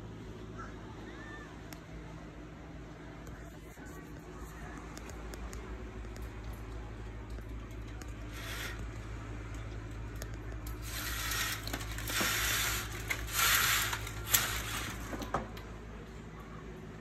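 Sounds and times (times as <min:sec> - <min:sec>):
window blind vanes rustling: 0:08.2 - 0:09.1, 0:10.7 - 0:15.6.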